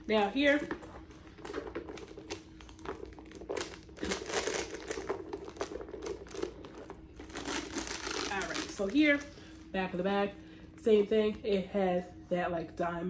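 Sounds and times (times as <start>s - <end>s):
leather bag rustling: 0.1s - 9.7s
metal chain strap clinking: 2.9s - 8.9s.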